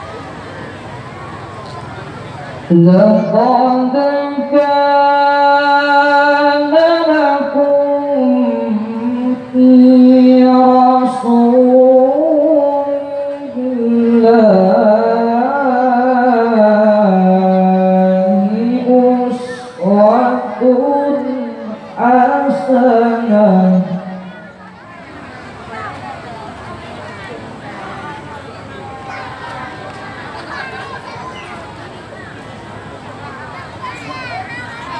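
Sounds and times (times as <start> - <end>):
man reciting melodically: 2.7 - 24.5.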